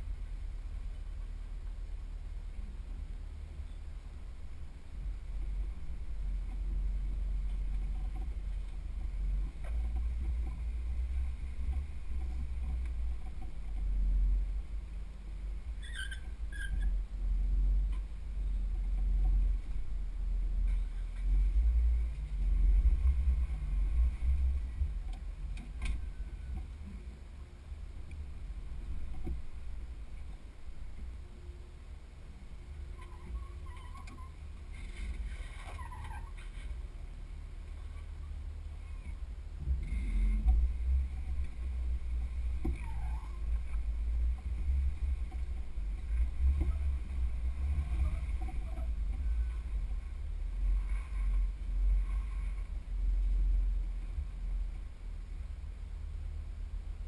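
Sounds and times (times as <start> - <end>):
vehicle crawling over rock: 2.6 - 31.2, 32.7 - 54.9.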